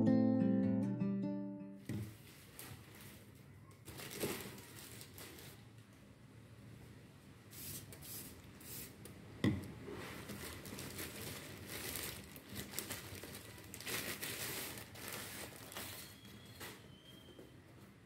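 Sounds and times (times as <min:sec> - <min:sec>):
plastic mailer bag crinkling: 0:02.1 - 0:05.8, 0:10.1 - 0:16.7.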